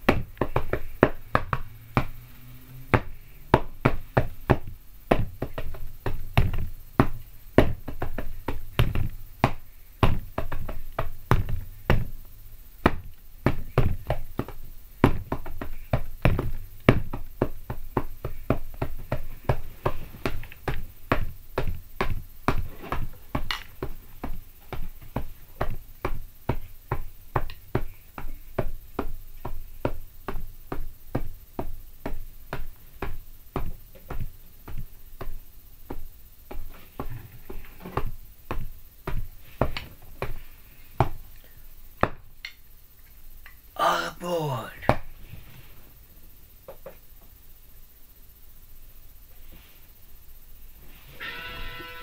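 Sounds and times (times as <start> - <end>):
drumsticks thudding on pillows: 0.0 - 2.2.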